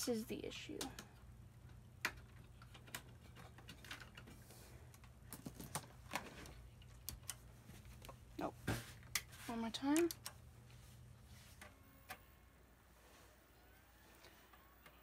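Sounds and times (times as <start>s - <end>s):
low steady hum: 0.0s - 15.0s
clicks and taps on a keyboard: 2.0s - 4.3s.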